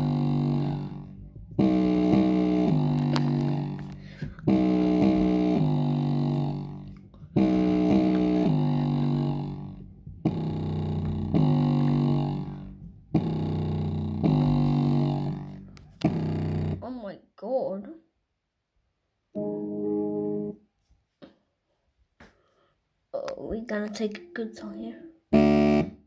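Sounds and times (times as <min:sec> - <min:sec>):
bass-heavy music loop through speaker: 0:00.0 - 0:16.8, 0:25.4 - 0:26.0.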